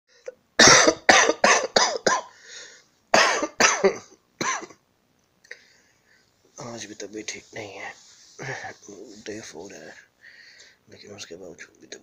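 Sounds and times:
person coughing hard: 0.6s - 2.4s, 3.1s - 4.8s.

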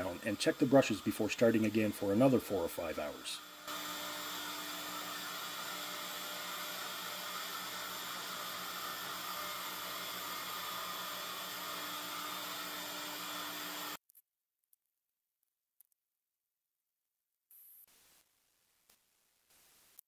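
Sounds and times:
router whining and cutting: 0.0s - 14.0s.

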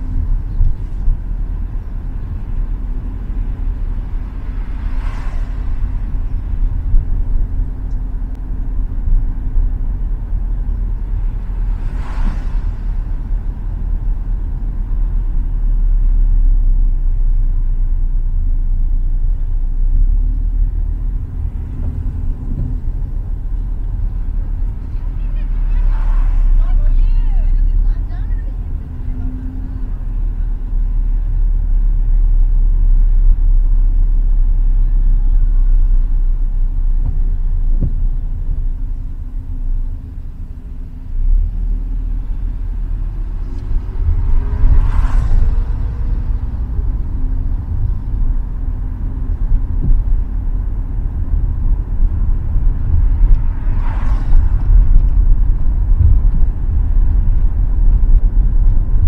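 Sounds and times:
car engine and road rumble: 0.0s - 59.0s
passing vehicles swishing by: 0.0s - 59.0s.

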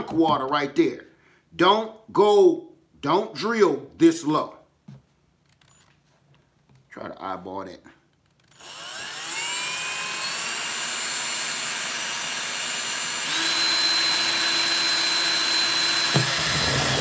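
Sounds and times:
cordless drill drilling plastic: 8.3s - 17.0s.

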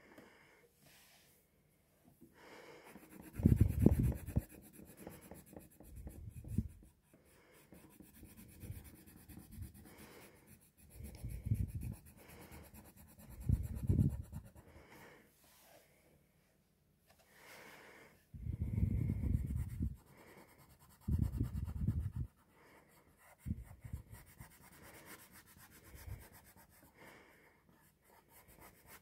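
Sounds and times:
pencil scratching on paper: 2.8s - 14.7s, 19.0s - 27.1s, 27.7s - 29.0s.

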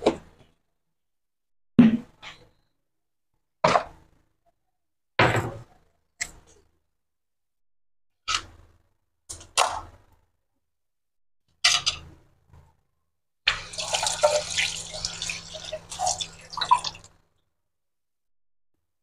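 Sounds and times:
water splashing and dripping: 13.5s - 17.1s.

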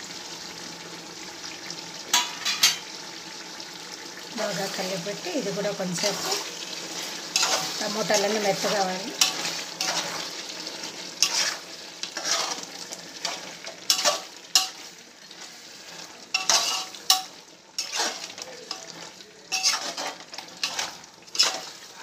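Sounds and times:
frying sizzle: 0.0s - 22.0s
spoon scraping and knocking pot: 16.4s - 18.3s, 19.5s - 21.7s.

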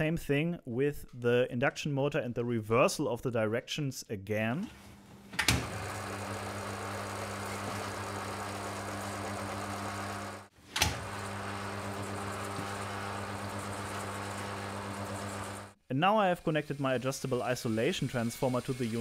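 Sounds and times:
motor humming: 5.5s - 15.8s.

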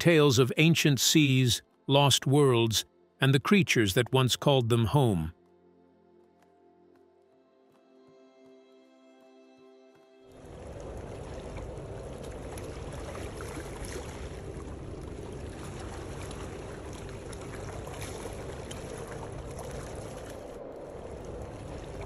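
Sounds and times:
sea water washing on shore: 10.3s - 22.0s.

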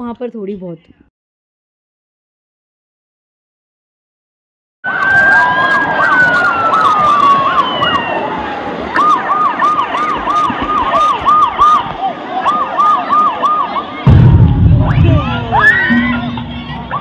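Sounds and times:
electronic siren wail: 14.6s - 17.0s.

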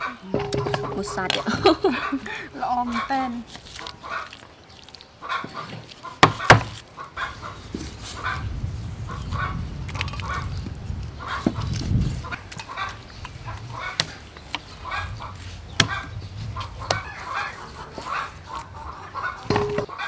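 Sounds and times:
chickens clucking: 5.0s - 10.6s, 11.2s - 20.0s.

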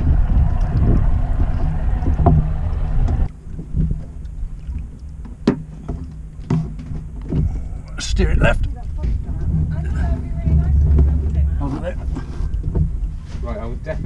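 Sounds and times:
outboard motor running: 0.0s - 13.8s
low rumble: 0.0s - 14.0s
sharp knocks: 5.2s - 7.5s.

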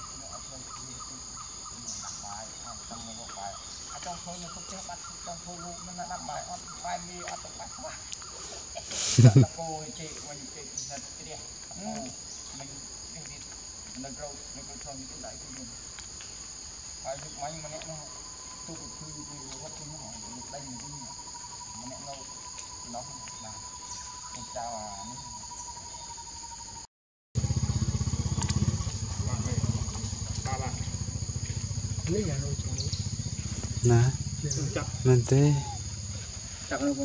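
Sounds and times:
insects droning: 0.0s - 37.0s
short low calls: 27.4s - 37.0s.

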